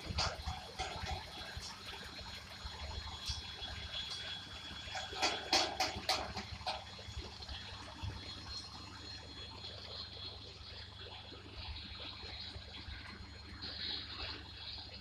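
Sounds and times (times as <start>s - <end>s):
steel wheels rumbling on rails: 0.0s - 9.0s.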